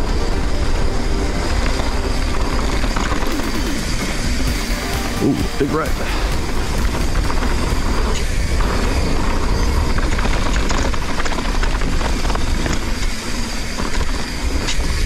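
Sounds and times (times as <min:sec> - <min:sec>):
wind rumble on microphone: 0:00.0 - 0:04.6, 0:05.4 - 0:15.0
bike tyres rolling over dirt: 0:00.0 - 0:15.0
bike rattling clicks and knocks: 0:01.7 - 0:04.4, 0:06.4 - 0:15.0.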